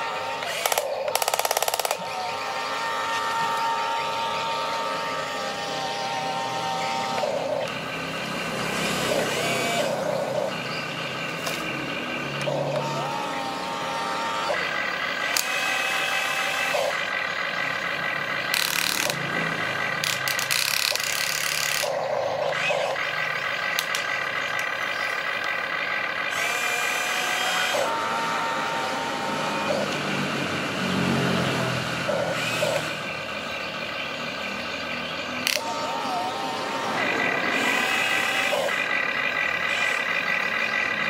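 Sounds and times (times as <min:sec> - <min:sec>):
electric motors whining: 0:00.0 - 0:41.0
harsh rushes of noise: 0:35.5 - 0:40.1.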